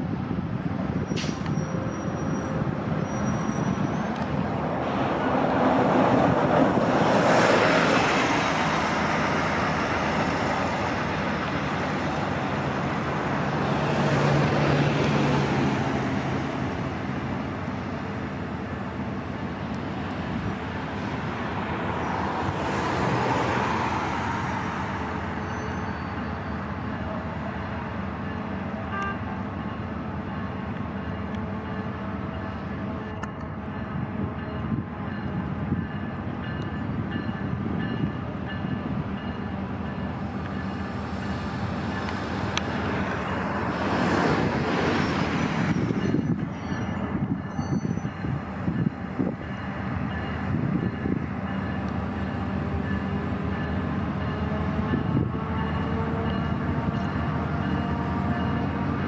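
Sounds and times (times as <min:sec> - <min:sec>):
diesel locomotive engine drone: 0:00.0 - 0:59.0.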